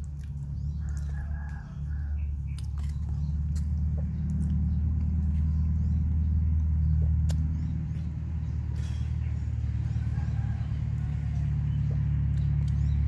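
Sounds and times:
man chewing: 0:00.0 - 0:10.2, 0:10.8 - 0:13.0
steady low rumble: 0:00.0 - 0:13.0
wet mouth clicks: 0:07.0 - 0:07.6.

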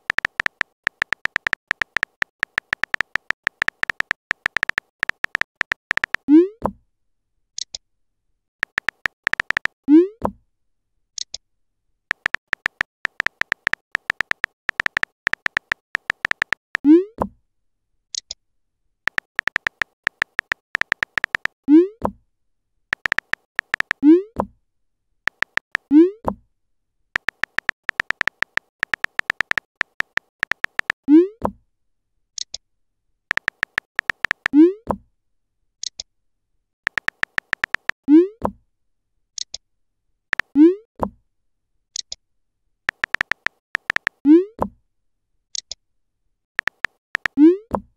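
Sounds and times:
phone keyboard typing clicks: 0:00.0 - 0:06.2, 0:08.6 - 0:09.8, 0:12.1 - 0:16.9, 0:19.1 - 0:21.6, 0:22.9 - 0:24.0, 0:25.3 - 0:25.9, 0:27.2 - 0:31.0, 0:33.3 - 0:34.6, 0:36.9 - 0:38.0, 0:42.9 - 0:44.2, 0:46.6 - 0:47.4.

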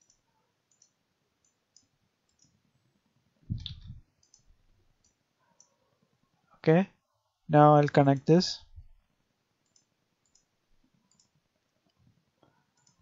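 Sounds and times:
computer mouse clicks: 0:00.0 - 0:02.6, 0:03.5 - 0:05.8, 0:09.6 - 0:10.5, 0:11.1 - 0:13.0.

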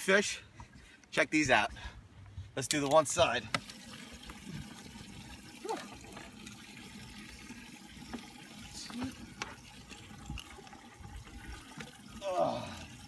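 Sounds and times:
water sloshing in a tank: 0:03.2 - 0:13.0.

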